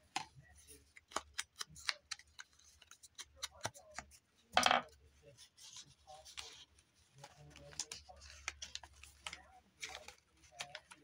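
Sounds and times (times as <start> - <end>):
paper rustling: 5.3 - 11.0.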